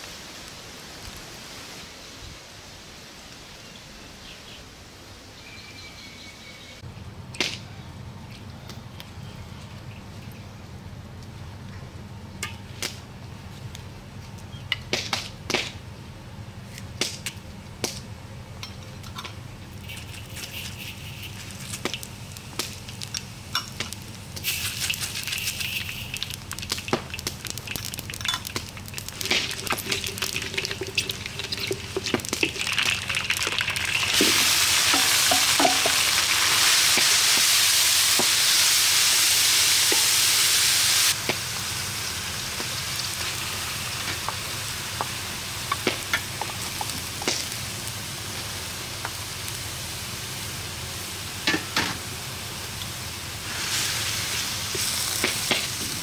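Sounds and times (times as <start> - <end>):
spitting oil pops and crackles: 12.4 - 13.0, 14.8 - 15.8, 16.8 - 18.1, 19.1 - 38.4, 41.1 - 41.5, 44.0 - 49.6, 54.7 - 56.0
chillies frying in hot oil: 18.6 - 56.0.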